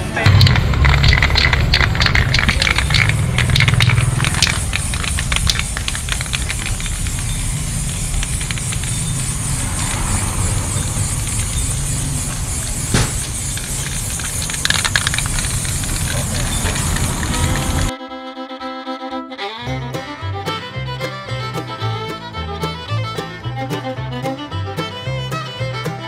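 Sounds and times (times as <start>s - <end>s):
quick clicks: 0.2s - 17.9s
spray paint can hissing: 0.2s - 17.9s
background music with bass: 19.2s - 26.0s.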